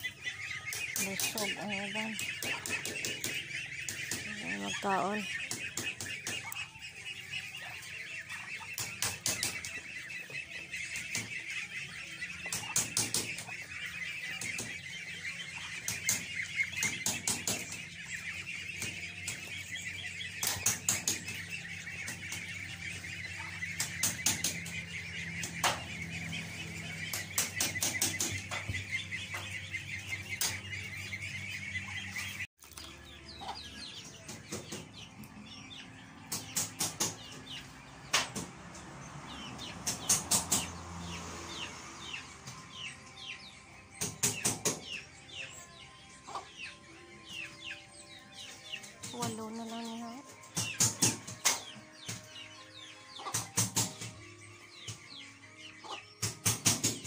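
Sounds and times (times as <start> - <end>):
quiet fowl sounds: 0.0 - 32.4, 46.2 - 46.8
ducklings peeping: 0.0 - 57.0
ducks calling: 0.0 - 57.0.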